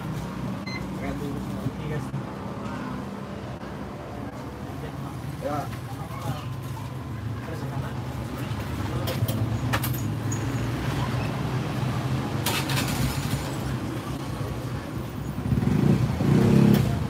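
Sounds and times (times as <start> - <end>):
road traffic: 0.0 - 17.0
motorcycle engines running: 8.0 - 17.0.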